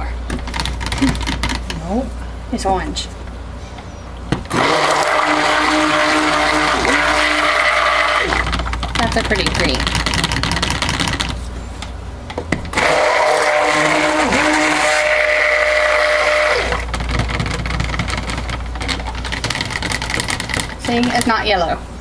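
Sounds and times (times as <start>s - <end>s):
immersion blender whining: 4.5s - 11.2s, 12.7s - 21.0s.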